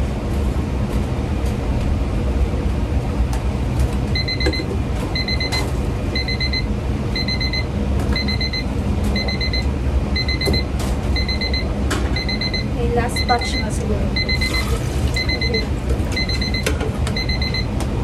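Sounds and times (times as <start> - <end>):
low kitchen rumble: 0.0 - 18.0
electronic alarm beeping: 4.2 - 17.7.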